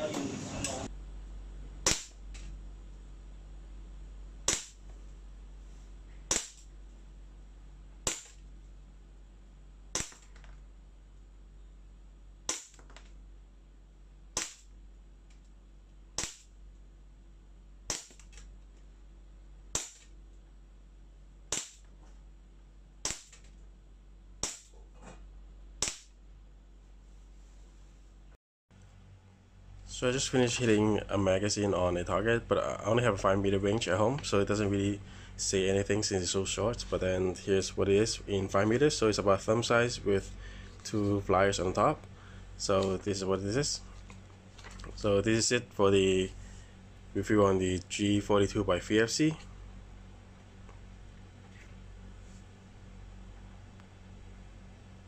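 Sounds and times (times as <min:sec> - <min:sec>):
airsoft pistol shots: 0:01.8 - 0:02.2.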